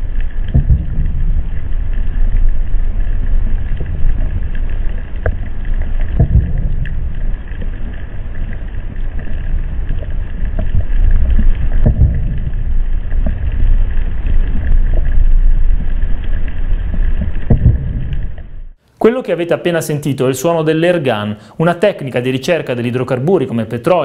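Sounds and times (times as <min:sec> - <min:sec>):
underwater airgun blasts: 0:00.0 - 0:01.6, 0:06.2 - 0:07.2, 0:10.6 - 0:12.7
low rumble: 0:00.0 - 0:18.8.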